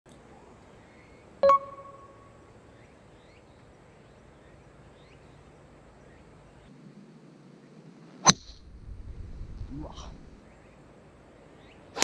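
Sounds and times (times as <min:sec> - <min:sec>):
low steady background: 0:00.1 - 0:12.0
faint high chirps: 0:00.8 - 0:02.8
sharp metallic ping: 0:01.4 - 0:02.3.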